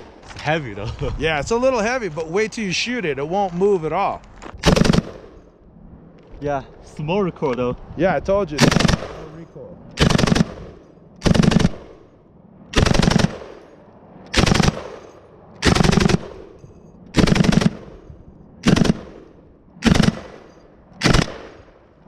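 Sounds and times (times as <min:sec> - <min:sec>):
machine gun bursts: 0:04.6 - 0:05.2, 0:08.6 - 0:09.2, 0:10.0 - 0:10.6, 0:11.2 - 0:11.9, 0:12.8 - 0:13.5, 0:14.3 - 0:15.0, 0:15.6 - 0:16.3, 0:17.2 - 0:17.9, 0:18.6 - 0:19.1, 0:19.8 - 0:20.3, 0:21.0 - 0:21.5
gunfire echo: 0:04.6 - 0:05.5, 0:08.6 - 0:09.4, 0:10.0 - 0:12.1, 0:12.7 - 0:22.0.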